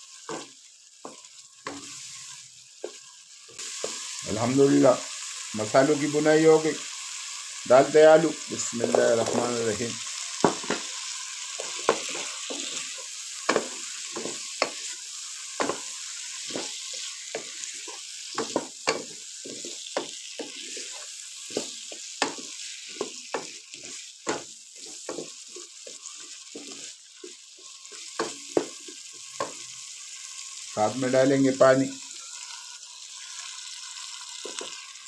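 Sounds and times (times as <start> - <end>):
food sizzling in a pan: 0.0 - 35.0
wooden spatula scraping a pan: 10.5 - 15.0, 15.6 - 29.6.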